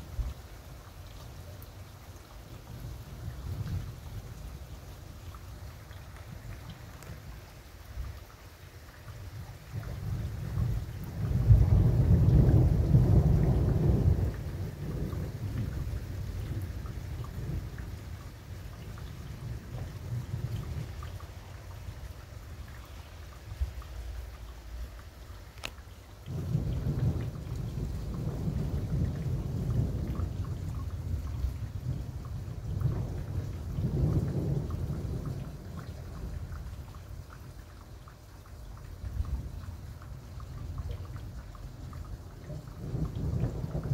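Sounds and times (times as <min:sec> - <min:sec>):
raindrops striking a surface: 0:00.0 - 0:43.9
thunder rumbling: 0:09.7 - 0:21.2, 0:26.3 - 0:36.8, 0:41.9 - 0:43.9.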